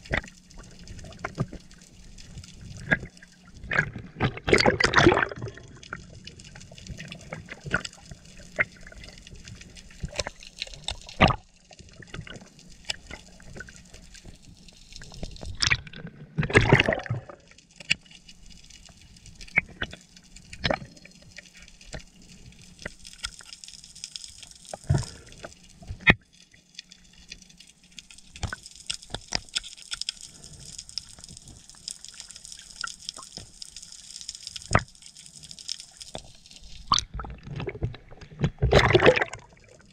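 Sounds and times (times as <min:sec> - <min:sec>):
sharp clicks and crackles: 0:00.0 - 0:39.9
underwater water noise: 0:00.0 - 0:39.9
water gurgling rush: 0:02.8 - 0:05.9, 0:36.9 - 0:39.9.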